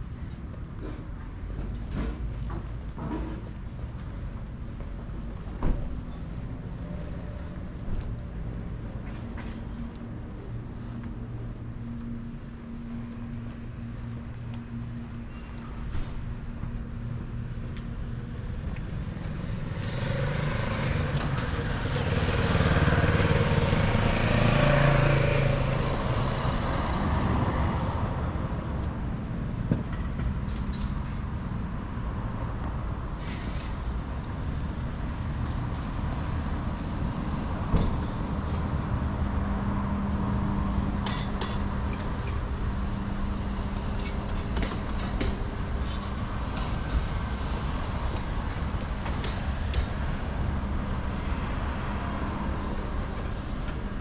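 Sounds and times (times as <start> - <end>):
street traffic noise: 0.0 - 54.0
large vehicle passing: 18.1 - 28.5.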